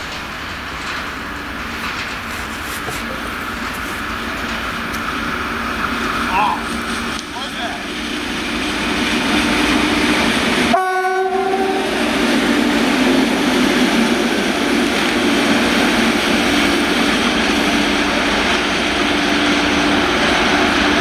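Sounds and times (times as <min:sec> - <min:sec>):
diesel locomotive engine droning: 0:00.0 - 0:21.0
locomotive horn blast: 0:10.7 - 0:12.0.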